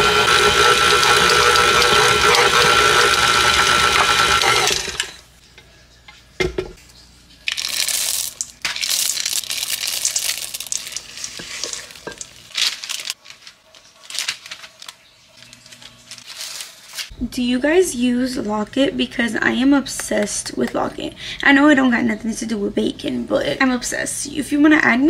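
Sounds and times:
stand mixer running: 0:00.0 - 0:05.3
bowl scraping and clattering: 0:07.9 - 0:13.5.

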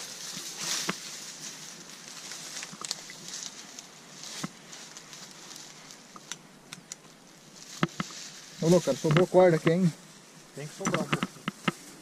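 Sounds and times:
dry grass and brush rustling: 0:00.0 - 0:12.0
twigs snapping: 0:00.6 - 0:08.4.

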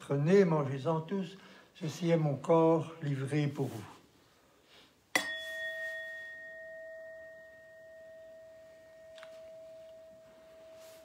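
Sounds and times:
altar bell ringing: 0:05.2 - 0:11.0.

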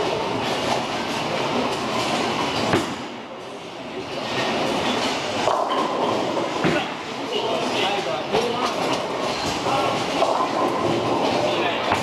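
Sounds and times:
bowling ball rolling rumble: 0:04.2 - 0:07.0, 0:08.5 - 0:12.0.

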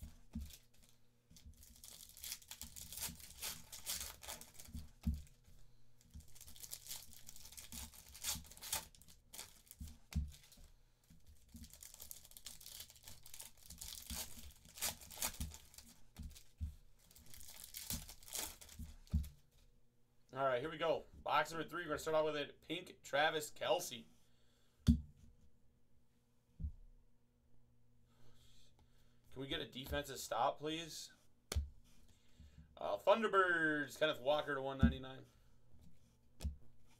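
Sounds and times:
foil wrappers tearing and crinkling: 0:00.3 - 0:05.3, 0:06.2 - 0:10.6, 0:11.4 - 0:16.4, 0:17.0 - 0:18.9.

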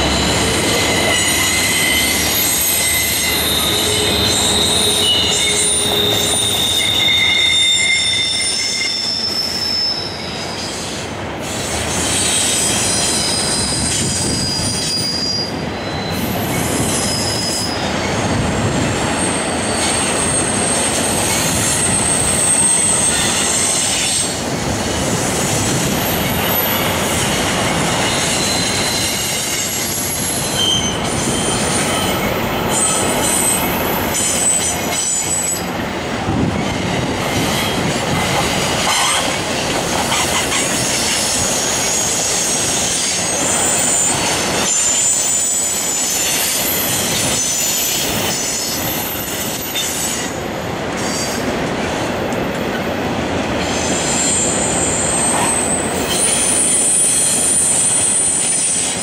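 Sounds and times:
high-pitched wheel squeals: 0:00.0 - 0:10.9, 0:12.0 - 0:18.2, 0:19.2 - 0:24.4, 0:27.6 - 0:35.7, 0:40.0 - 0:50.3, 0:53.7 - 0:59.0
train wheels rumbling on rail: 0:00.0 - 0:59.0.

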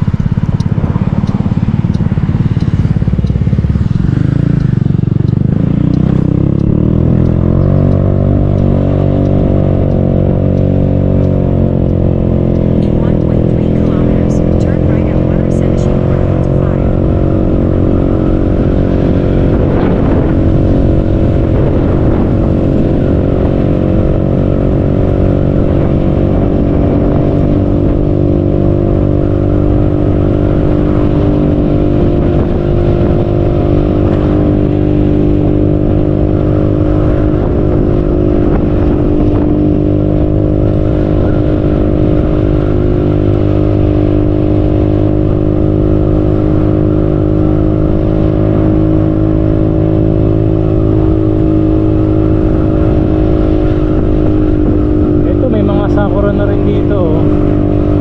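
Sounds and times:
scooter engine running: 0:00.0 - 0:58.0
wind and road noise: 0:00.0 - 0:58.0.

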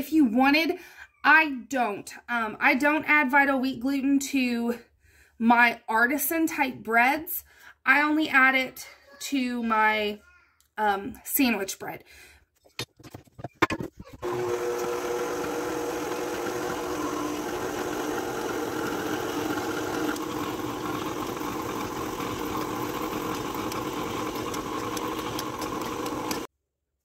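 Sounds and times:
stand mixer motor whining: 0:14.2 - 0:26.5.

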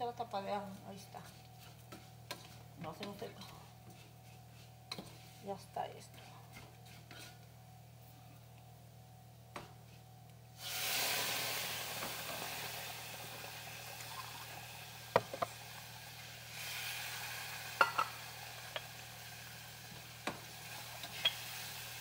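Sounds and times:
rice sizzling in a hot pot: 0:00.8 - 0:08.1, 0:09.6 - 0:22.0
utensils clicking against pot: 0:21.0 - 0:21.4.

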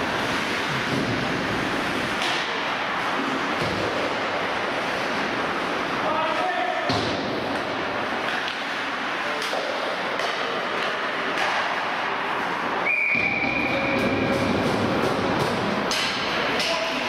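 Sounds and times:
skates scraping on ice: 0:00.0 - 0:06.5
hockey sticks and puck clacking: 0:00.0 - 0:17.0.

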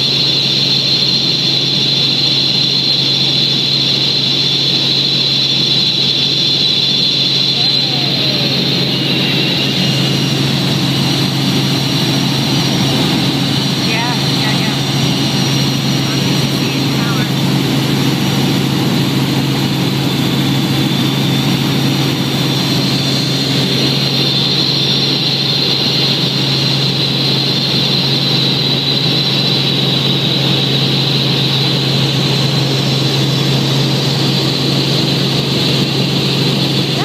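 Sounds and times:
helicopter engine and rotor drone: 0:00.0 - 0:37.0
high whine: 0:01.6 - 0:26.2.

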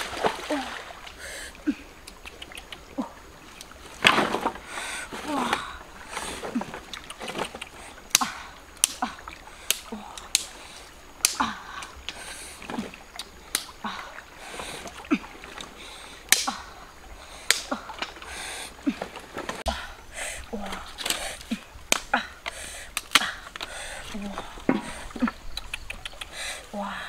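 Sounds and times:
water splashing: 0:00.0 - 0:27.0.

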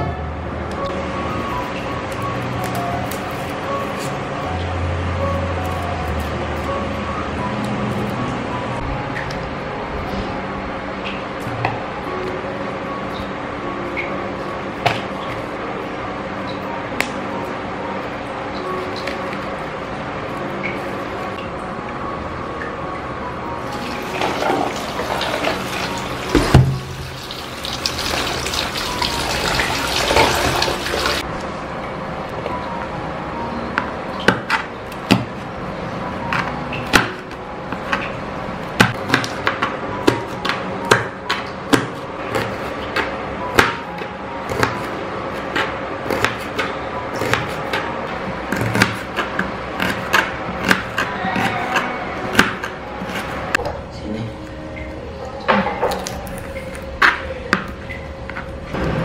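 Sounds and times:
tap water running into basin: 0:23.7 - 0:31.2.

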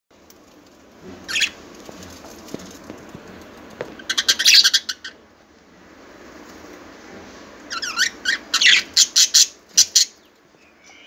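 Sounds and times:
budgerigars chirping: 0:04.0 - 0:05.2, 0:07.7 - 0:10.3.

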